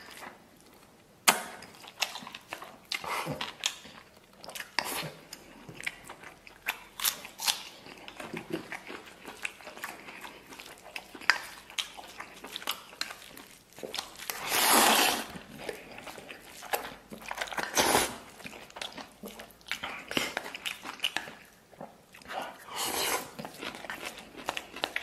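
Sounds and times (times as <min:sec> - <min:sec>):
chewing and lip smacking: 0:00.0 - 0:25.0
noisy slurp: 0:14.2 - 0:18.6.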